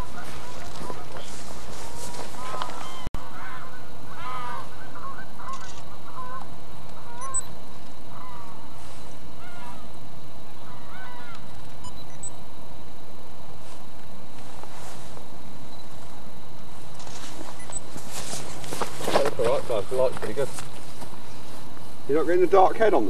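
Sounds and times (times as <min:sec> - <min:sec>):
geese honking: 0:00.0 - 0:11.5.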